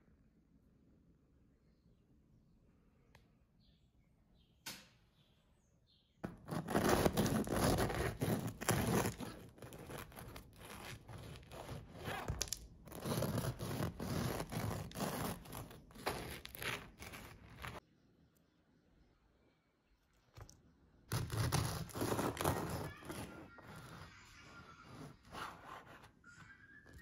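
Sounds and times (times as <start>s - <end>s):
bread knife sawing through loaf: 6.2s - 17.8s, 21.1s - 24.2s, 24.8s - 26.2s.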